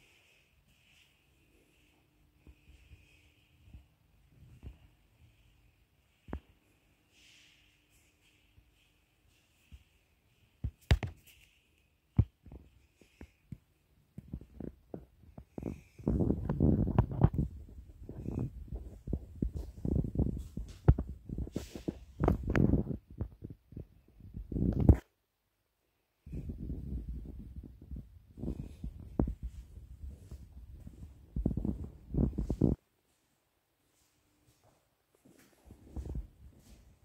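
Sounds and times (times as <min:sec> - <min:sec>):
footsteps on tiled floor: 0:33.9 - 0:37.0.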